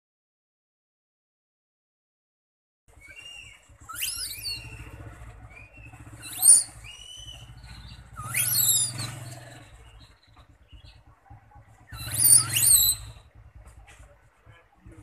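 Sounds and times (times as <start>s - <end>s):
baby monkeys squealing: 3.0s - 11.0s, 11.8s - 13.3s
thin whistling calls: 3.0s - 11.1s, 11.8s - 13.3s.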